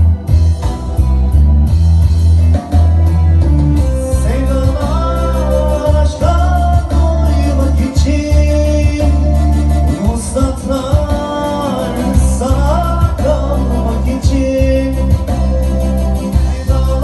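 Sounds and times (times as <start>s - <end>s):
live band music: 0.0s - 17.0s
person singing: 4.0s - 17.0s.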